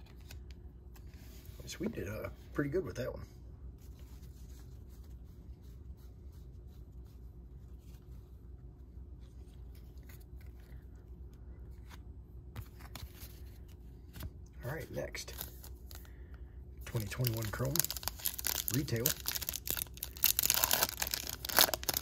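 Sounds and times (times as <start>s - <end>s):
steady low hum: 0.0s - 22.0s
trading cards rustling: 16.9s - 22.0s.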